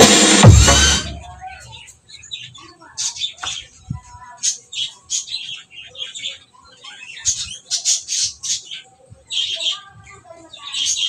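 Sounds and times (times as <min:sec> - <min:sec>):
low thumps: 0:00.0 - 0:01.4
music with chirping squawks: 0:00.0 - 0:02.1.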